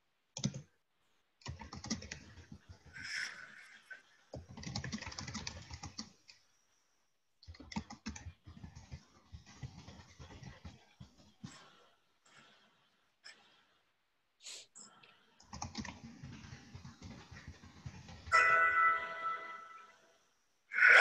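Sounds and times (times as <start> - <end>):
keyboard typing: 0.4 - 0.7, 1.4 - 3.3, 4.3 - 6.2, 7.4 - 11.4, 15.4 - 18.4.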